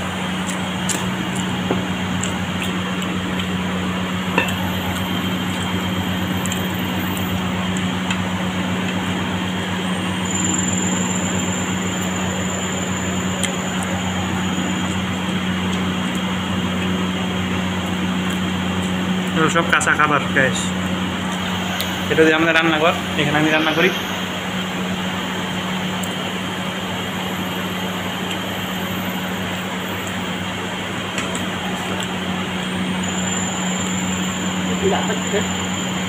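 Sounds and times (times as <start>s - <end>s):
ventilation fans humming: 0.0s - 36.0s
faint high whine: 2.8s - 36.0s.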